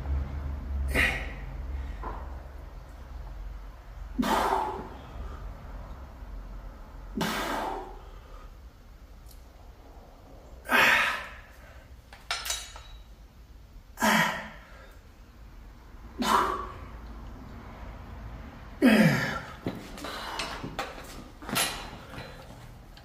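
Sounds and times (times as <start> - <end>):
man exhaling forcefully: 0.9 - 2.1, 4.2 - 5.5, 7.2 - 8.5, 10.6 - 11.8, 16.2 - 17.0.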